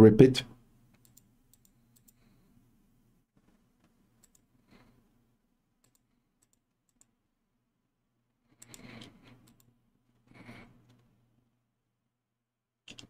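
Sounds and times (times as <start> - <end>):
computer mouse clicks: 0.9 - 2.2, 3.8 - 4.5, 5.8 - 7.2, 8.6 - 9.7.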